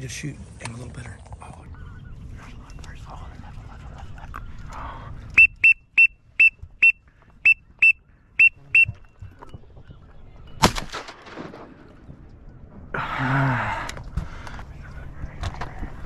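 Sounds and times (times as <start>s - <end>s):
duck whistle call toots: 5.4s - 9.0s
shotgun blast: 10.6s - 12.0s.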